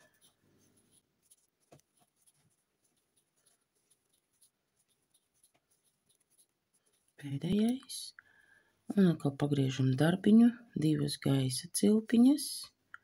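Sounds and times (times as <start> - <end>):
crochet hook scratching yarn: 0.0 - 8.1.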